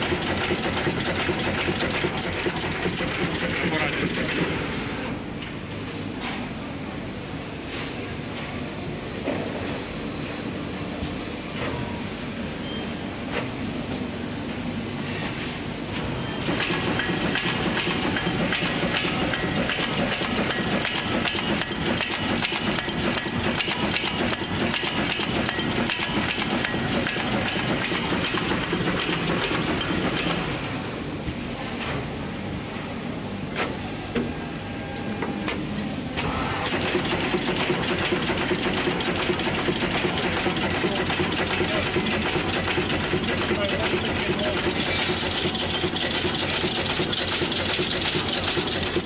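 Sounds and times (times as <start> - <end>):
machine mechanical clatter: 0.0 - 5.0, 16.4 - 30.6, 36.2 - 49.0.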